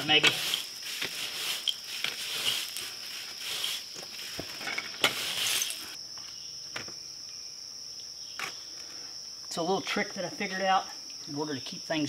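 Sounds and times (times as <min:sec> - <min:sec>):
brush swishing on concrete wall: 0:00.0 - 0:06.0
high drone of insects: 0:00.0 - 0:12.0.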